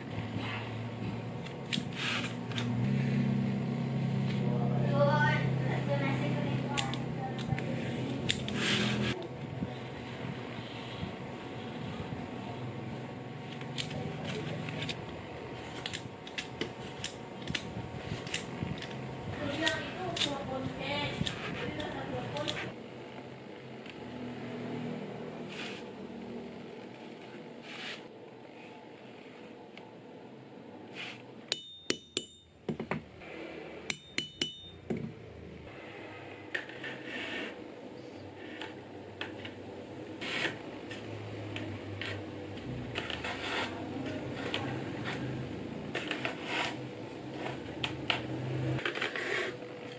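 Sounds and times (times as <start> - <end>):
mallet striking metal chisel: 31.5 - 32.8, 33.9 - 34.9.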